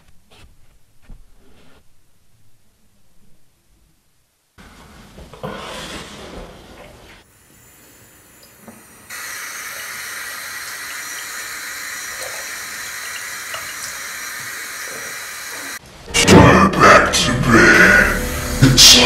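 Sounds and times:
faucet water running into basin: 8.3 - 15.8.

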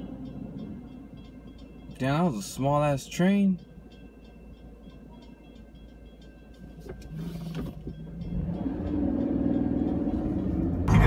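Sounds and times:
railroad crossing bell ringing: 0.0 - 11.0
car engine accelerating: 7.0 - 11.0.

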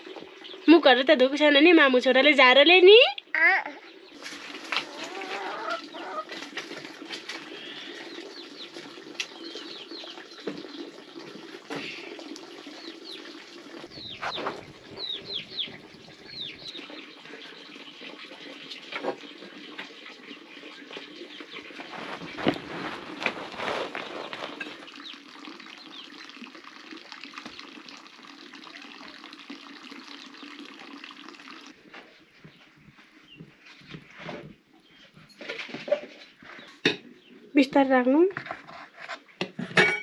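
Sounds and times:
bird chirps: 13.9 - 17.6.

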